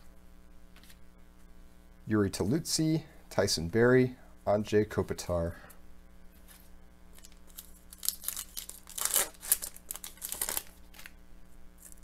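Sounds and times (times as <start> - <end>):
wrapper tearing and crinkling: 7.1 - 11.2, 11.8 - 12.0.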